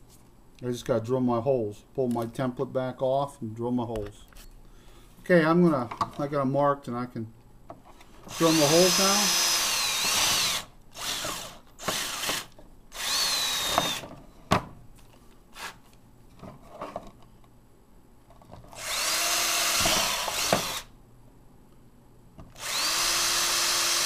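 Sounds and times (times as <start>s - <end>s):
cordless drill boring plastic: 8.3s - 14.0s, 18.8s - 20.9s, 22.6s - 24.0s.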